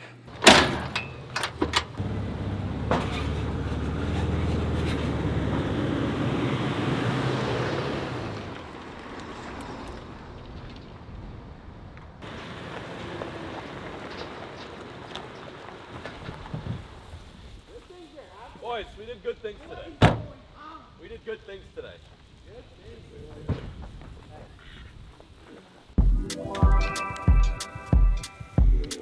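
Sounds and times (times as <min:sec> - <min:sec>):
faint road noise: 0:00.0 - 0:26.0
vehicle engine hum: 0:01.2 - 0:17.2
tyre noise: 0:12.2 - 0:17.9.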